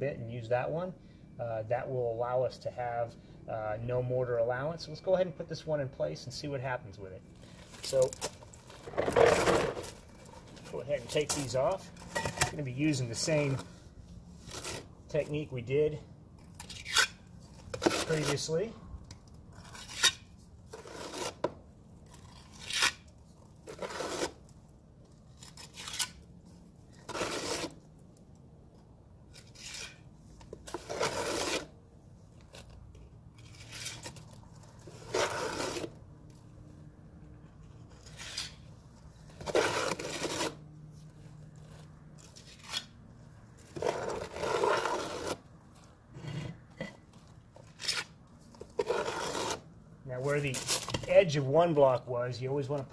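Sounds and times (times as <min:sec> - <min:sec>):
trowel scraping and knocking mortar: 0:07.9 - 0:13.6, 0:16.7 - 0:18.6, 0:27.0 - 0:27.8, 0:30.6 - 0:31.7, 0:34.9 - 0:35.9, 0:39.3 - 0:40.6, 0:43.7 - 0:45.4, 0:47.8 - 0:49.6.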